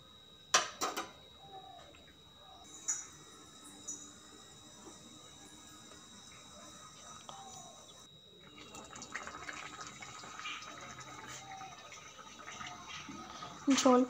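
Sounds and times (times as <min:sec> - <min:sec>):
curry simmering with pops: 0:08.4 - 0:13.9.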